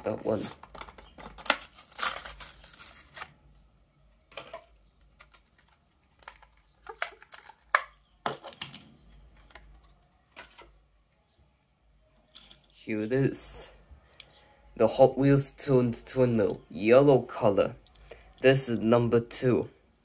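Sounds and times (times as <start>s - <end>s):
plastic package tearing: 0.3s - 3.4s, 4.4s - 8.0s
plastic snaps: 0.4s - 1.7s, 4.3s - 10.7s
plastic crinkles and clicks: 0.4s - 3.4s, 4.3s - 10.7s.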